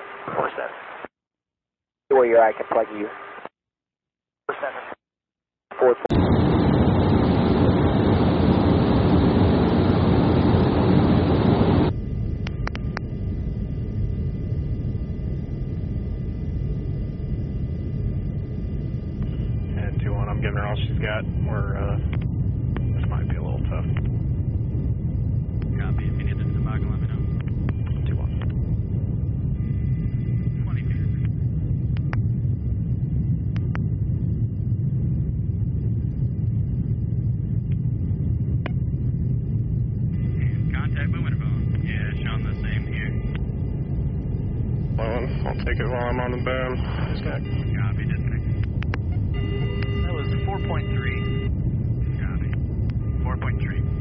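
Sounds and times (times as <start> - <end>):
faint steady hum: 5.8 - 54.0
aircraft cabin rushing drone: 6.1 - 27.8
low rumble: 6.1 - 54.0.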